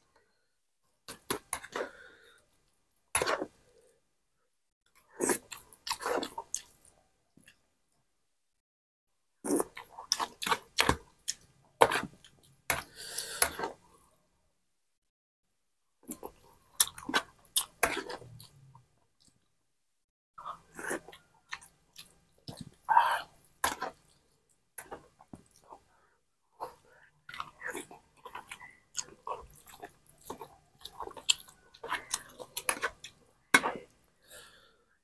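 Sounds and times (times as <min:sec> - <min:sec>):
man chewing food: 0:04.9 - 0:08.0, 0:09.4 - 0:14.0, 0:16.0 - 0:19.5, 0:20.4 - 0:34.1.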